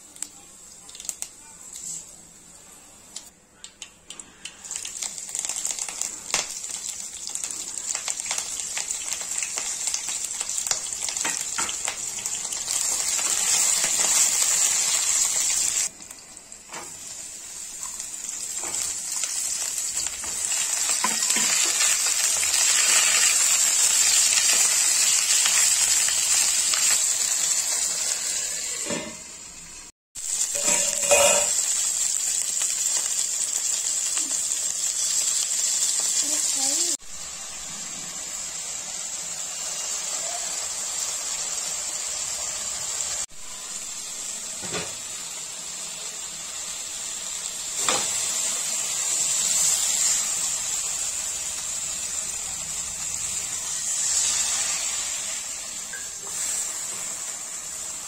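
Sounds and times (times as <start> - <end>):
hot oil sizzling: 0.0 - 3.3, 4.1 - 58.0
mustard seeds crackling and popping: 0.1 - 1.9.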